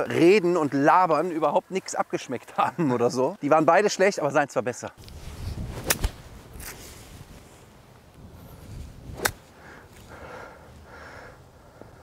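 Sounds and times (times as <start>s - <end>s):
faint outdoor background: 0.0s - 12.0s
golf club striking ball: 9.1s - 9.5s.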